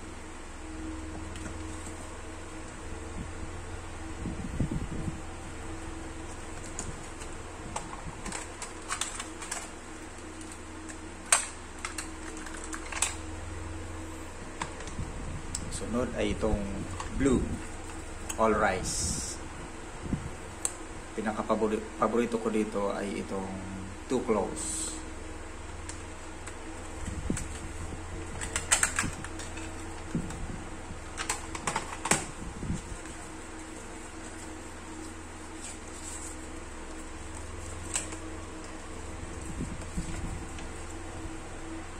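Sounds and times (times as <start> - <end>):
paper rustling: 32.8 - 41.3.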